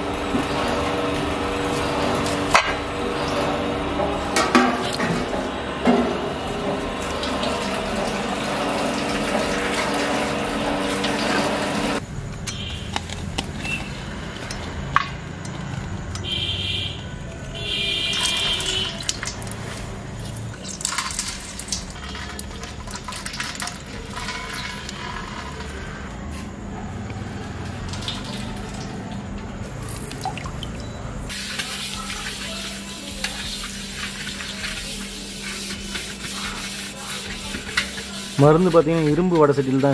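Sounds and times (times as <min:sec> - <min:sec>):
juice dripping into steel pot: 0:18.0 - 0:26.0, 0:27.0 - 0:32.4
hand scrubbing iron pan: 0:18.2 - 0:26.0, 0:31.3 - 0:39.9.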